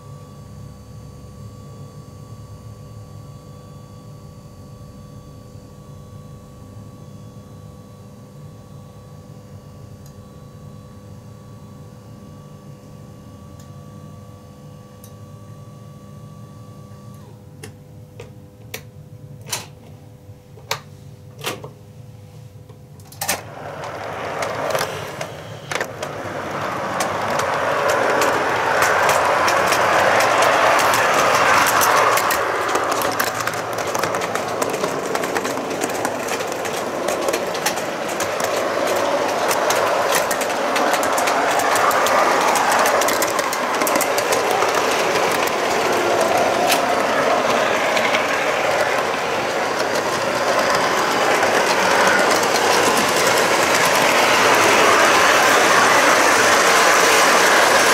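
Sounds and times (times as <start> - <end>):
model train wheels rumbling: 23.1 - 57.9.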